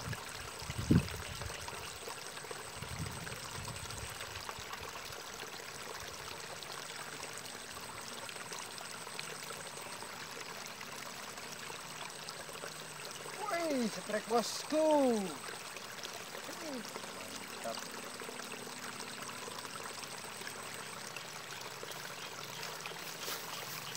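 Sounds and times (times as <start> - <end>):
water trickling in ditch: 0.0 - 23.9.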